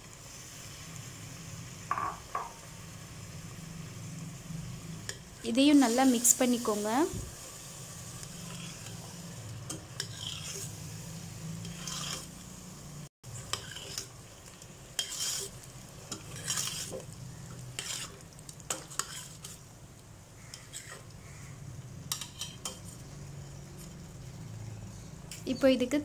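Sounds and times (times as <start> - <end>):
curry sizzling: 0.0 - 26.0
metal spoon scraping pot: 9.7 - 10.7, 11.6 - 12.3, 13.4 - 14.1, 15.0 - 17.0, 17.8 - 19.6, 20.5 - 21.1, 22.1 - 23.0.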